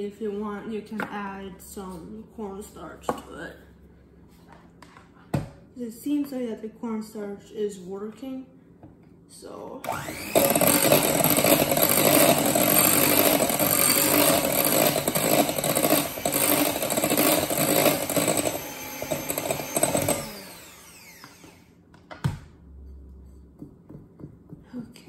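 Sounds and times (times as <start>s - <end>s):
electric hand mixer running: 9.8s - 21.8s.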